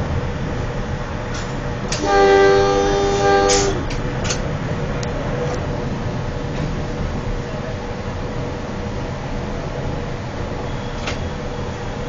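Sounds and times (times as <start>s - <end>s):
train rumbling on rails: 0.0s - 12.0s
train horn blast: 1.9s - 4.0s.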